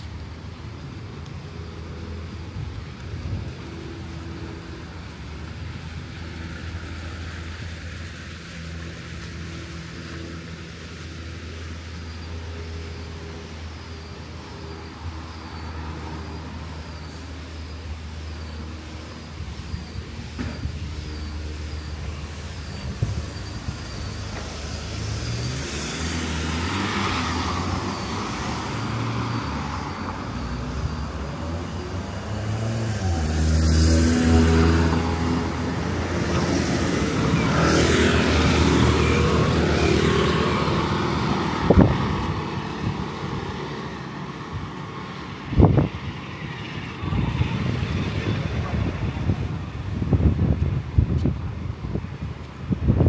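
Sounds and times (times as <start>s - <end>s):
vehicle passing: 1.5s - 50.9s.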